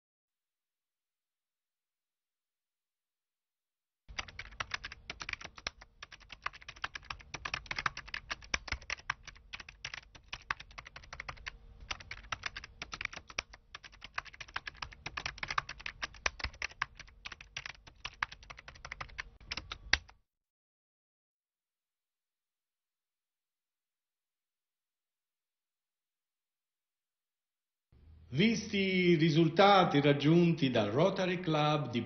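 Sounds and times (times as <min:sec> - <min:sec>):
keyboard typing clicks: 0:04.1 - 0:20.2.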